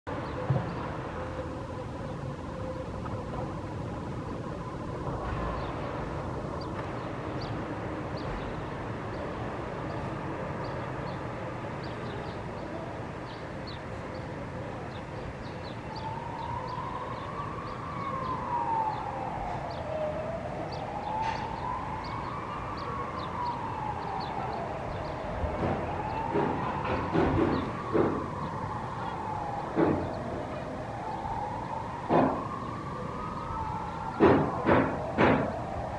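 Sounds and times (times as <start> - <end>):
city traffic noise: 0.1 - 35.9
emergency vehicle siren wailing: 0.1 - 35.9.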